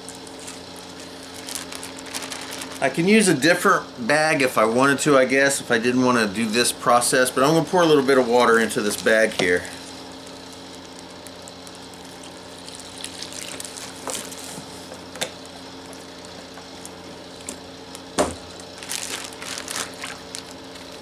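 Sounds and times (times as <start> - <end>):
plastic bag crinkling: 0.0 - 3.1, 12.6 - 14.6, 18.5 - 21.0
water trickling into plastic bag: 1.1 - 3.0, 12.0 - 14.5, 18.7 - 21.0.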